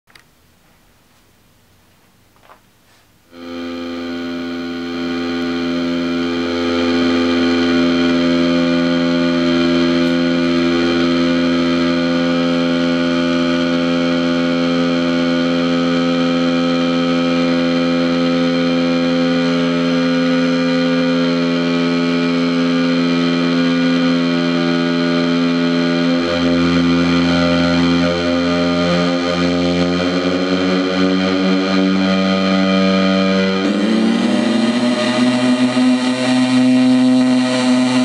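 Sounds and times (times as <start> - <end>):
small click: 0.1 - 0.3
faint amp hum: 0.1 - 38.0
distorted guitar noise drone: 3.2 - 38.0.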